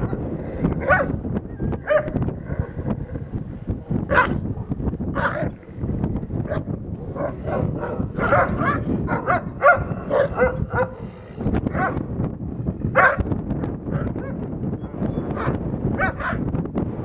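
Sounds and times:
wolves yelping and whining: 6.4 - 11.1.

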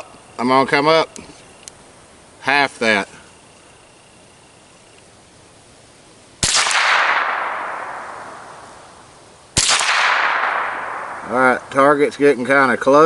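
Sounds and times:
rifle shots with echo: 6.4 - 8.9, 9.6 - 11.7.

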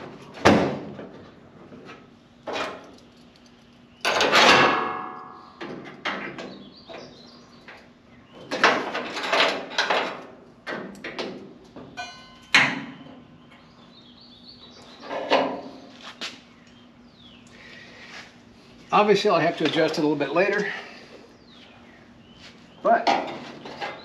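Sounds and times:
sheet metal panels clanking: 8.4 - 13.0.

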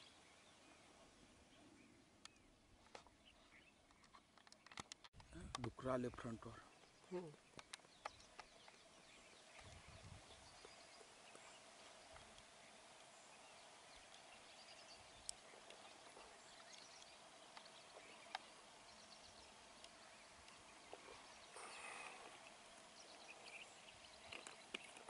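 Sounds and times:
sharp clicks: 3.8 - 5.8.

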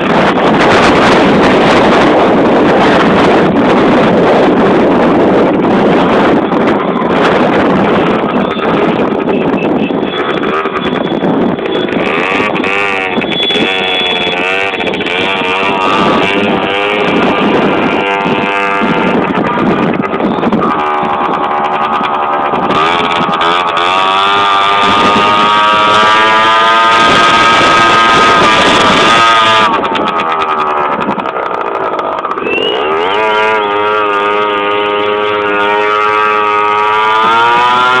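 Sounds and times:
long held pitched tones: 0.0 - 38.0
vehicles passing: 0.0 - 38.0.

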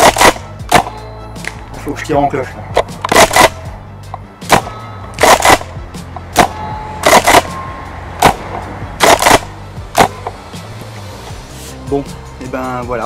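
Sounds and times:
shotgun pump racking clack: 0.0 - 1.6, 2.8 - 7.5
airsoft shotgun pops: 0.0 - 1.7, 2.7 - 5.6, 10.0 - 10.4.

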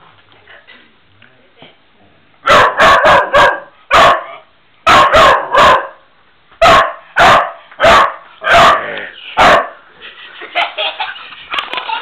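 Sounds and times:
dog barking: 2.4 - 6.0, 6.6 - 9.8.

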